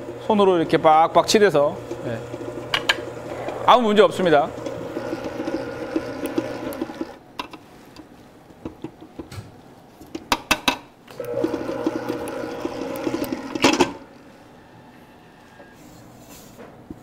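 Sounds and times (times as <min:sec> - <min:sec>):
electric stand mixer motor: 0:00.0 - 0:07.2, 0:11.2 - 0:14.6.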